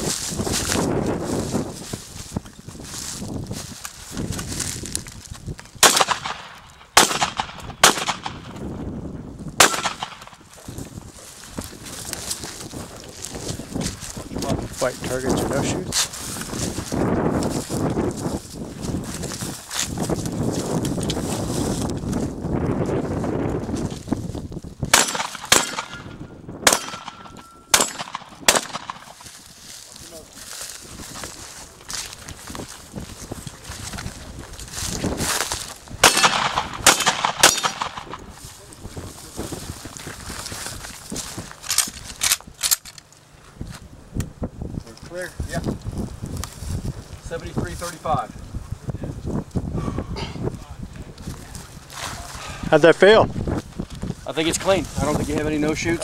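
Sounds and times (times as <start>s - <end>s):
shotgun shots: 5.8s - 8.6s, 9.6s - 10.5s, 24.9s - 29.2s, 36.0s - 38.3s.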